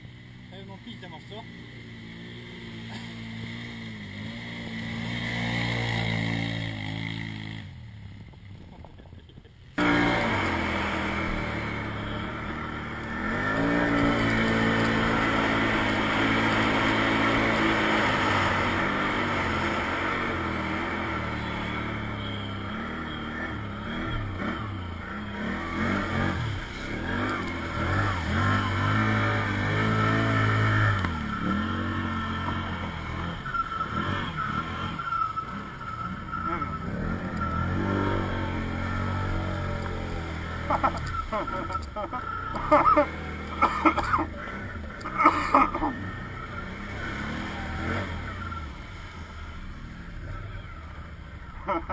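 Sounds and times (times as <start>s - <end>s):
atv engine revving: 0.0s - 51.9s
water splashing: 45.5s - 50.3s.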